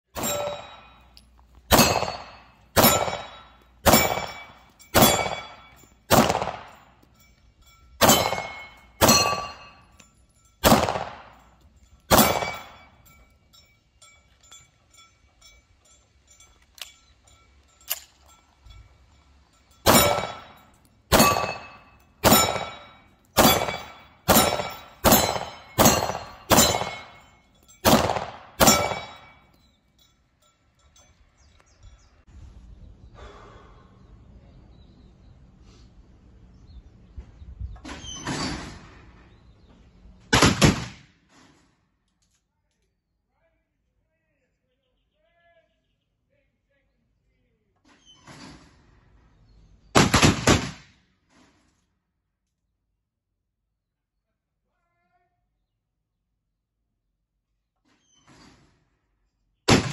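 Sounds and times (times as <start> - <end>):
pistol shots echoing: 0.2 - 1.0, 1.7 - 6.9, 8.0 - 9.9, 10.6 - 13.0, 19.8 - 29.4, 40.4 - 41.0, 50.0 - 50.8, 59.7 - 59.9
pistol handling clicks: 17.9 - 18.2.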